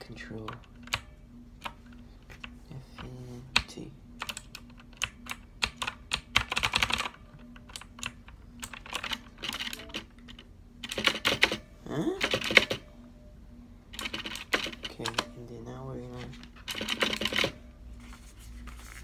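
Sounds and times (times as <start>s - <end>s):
mechanical keyboard keys clicking: 3.0s - 11.6s, 14.0s - 15.3s, 16.3s - 17.6s.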